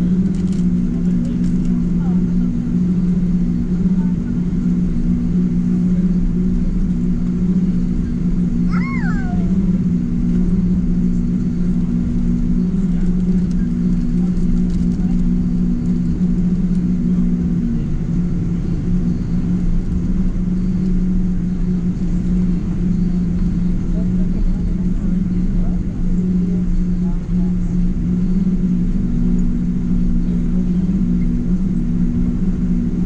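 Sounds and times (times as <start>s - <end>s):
airliner cabin drone: 0.0s - 33.0s
high rising and falling cry: 8.7s - 9.6s.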